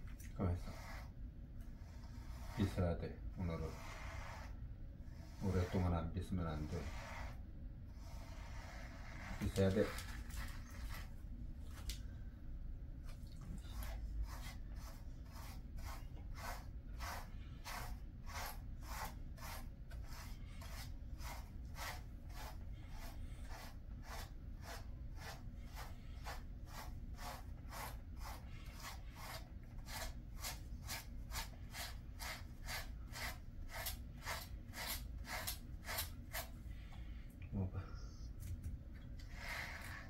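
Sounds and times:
brush strokes through dog fur: 0.5s - 1.2s, 1.8s - 4.6s, 5.2s - 7.4s, 8.0s - 10.2s, 13.6s - 36.5s.

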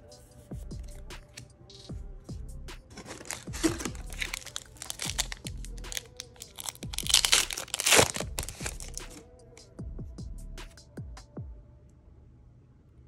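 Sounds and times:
background music: 0.0s - 12.0s
plastic wrapper crinkling and tearing: 2.9s - 9.2s.

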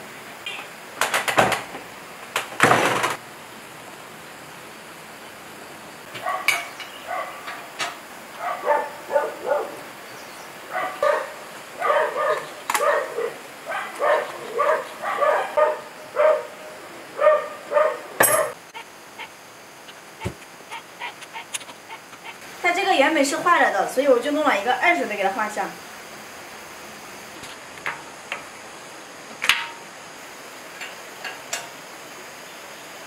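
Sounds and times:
dog barking: 6.2s - 7.5s, 8.4s - 9.9s, 10.7s - 19.3s, 20.2s - 22.4s.

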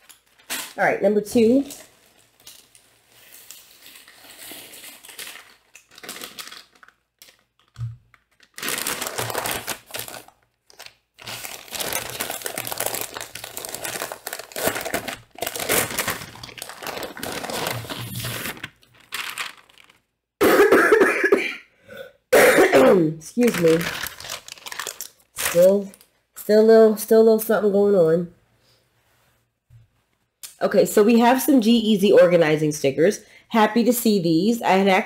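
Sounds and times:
packaging bag crinkling: 0.0s - 0.8s, 1.4s - 20.1s, 23.4s - 26.2s.

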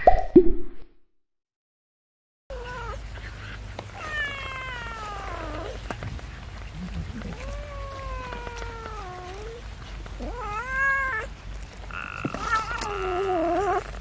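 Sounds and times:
cat meowing: 3.9s - 5.9s, 6.6s - 11.3s, 11.9s - 13.9s.

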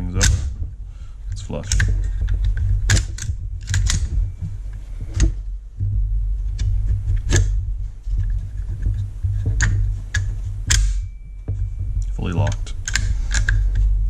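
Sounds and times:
steady low rumble: 0.0s - 14.0s
rifle bolt metallic clicks: 12.5s - 13.7s.

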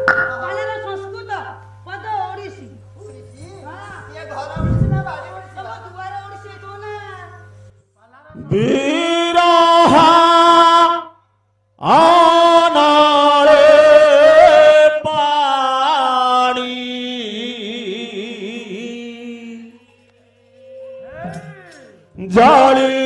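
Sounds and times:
man singing devotional song: 8.3s - 11.2s, 11.8s - 19.9s, 22.1s - 23.0s.

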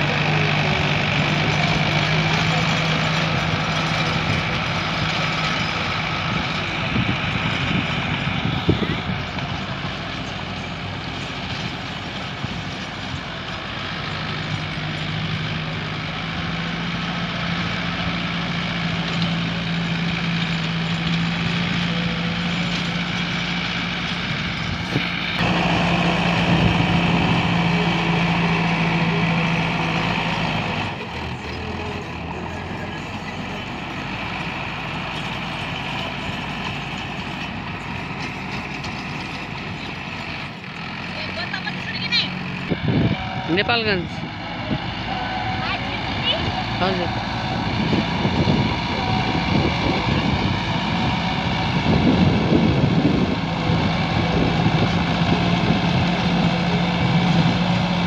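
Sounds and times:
rotavator churning soil: 0.0s - 42.1s
tractor engine running under load: 0.0s - 58.0s.

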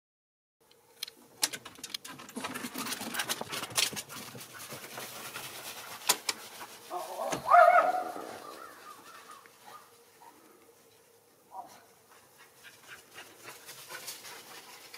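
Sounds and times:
dog barking or yelping: 6.9s - 8.6s.

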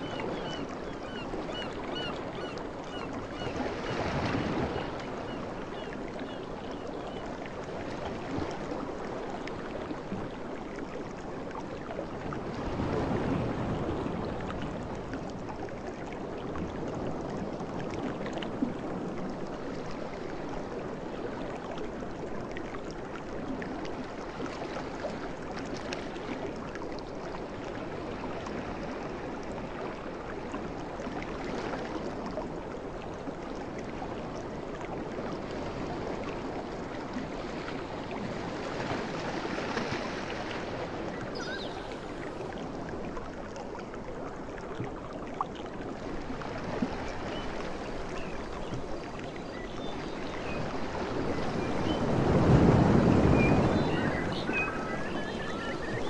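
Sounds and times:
sea waves washing onto shore: 45.9s - 56.0s.

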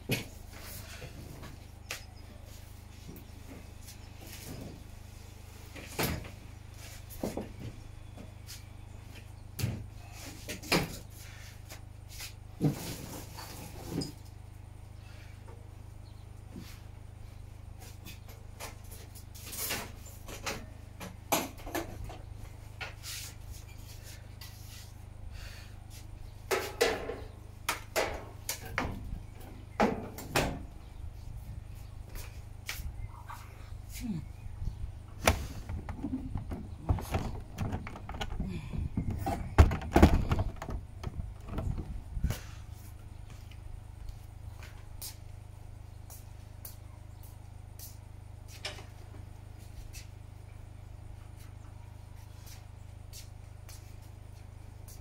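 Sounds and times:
steady low hum: 0.0s - 55.0s
dull knocks and thumps: 35.2s - 42.1s.

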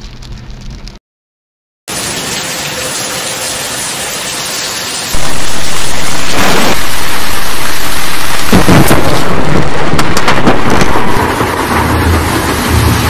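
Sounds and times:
heavy rain: 1.9s - 13.0s
thunder: 5.2s - 13.0s.

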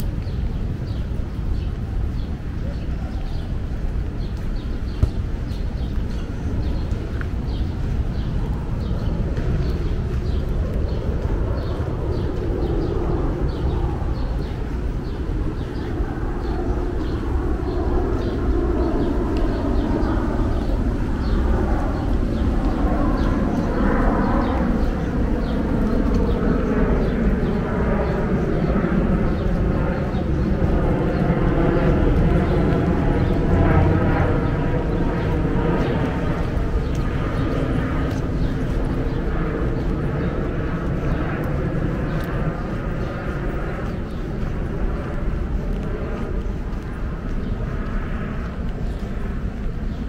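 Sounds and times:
low rumble of city ambience: 0.0s - 50.0s
small birds chirping: 0.0s - 50.0s.

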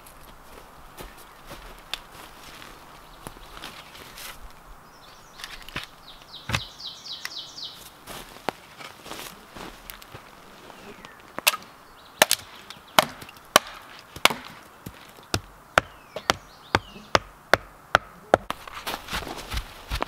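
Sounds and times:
hammer striking wood: 12.2s - 14.7s, 15.3s - 18.6s.

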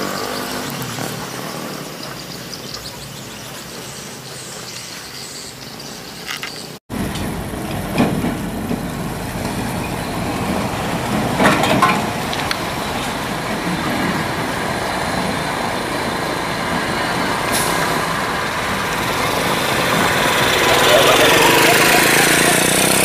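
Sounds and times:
motorcycles passing: 0.0s - 23.0s
diesel truck engine running: 6.9s - 23.0s.

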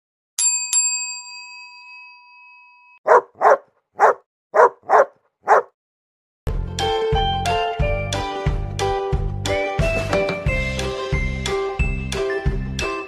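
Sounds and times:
bell dings: 0.4s - 3.0s
dog barking: 3.1s - 5.8s
music: 6.5s - 13.0s.

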